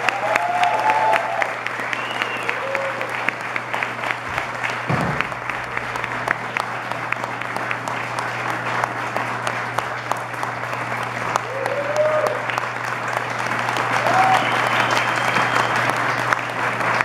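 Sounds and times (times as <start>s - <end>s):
shouted cheers: 0.0s - 3.3s, 11.4s - 12.6s, 13.8s - 16.2s
audience applauding: 0.0s - 17.0s.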